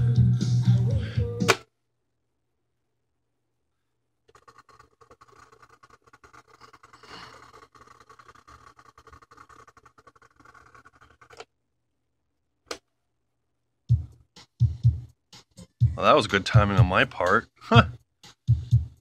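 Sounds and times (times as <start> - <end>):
cassette deck winding whir: 4.3 - 11.5.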